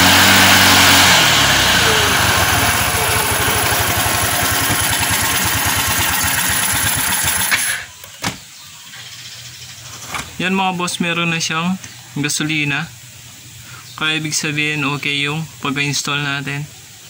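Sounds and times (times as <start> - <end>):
scooter engine revving and idling: 0.0 - 7.8.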